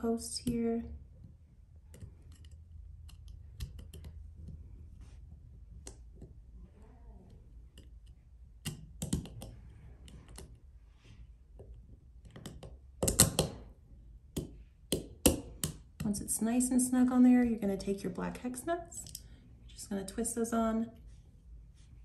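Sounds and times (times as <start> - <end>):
small plastic clicks and taps: 1.2 - 4.6, 7.7 - 10.6, 11.6 - 13.6.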